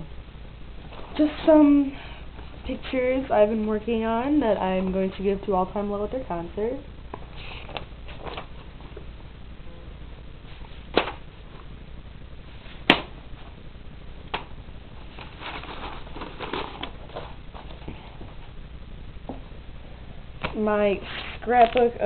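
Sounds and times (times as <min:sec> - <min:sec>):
low steady hum: 0:00.0 - 0:22.0
paper rustling: 0:07.2 - 0:09.0, 0:15.0 - 0:18.4, 0:21.0 - 0:21.9.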